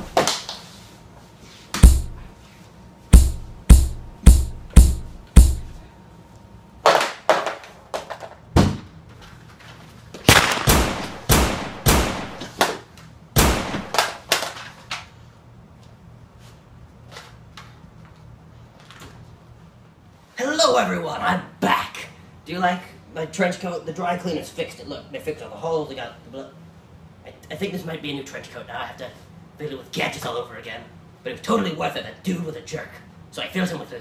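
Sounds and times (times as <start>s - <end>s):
gunshot bangs with echo: 10.3s - 12.5s, 13.4s - 14.0s.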